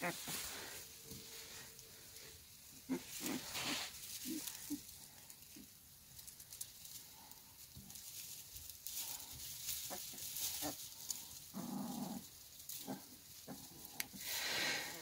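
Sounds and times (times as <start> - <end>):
puppies grunting and squeaking: 2.2 - 5.6, 8.9 - 15.0.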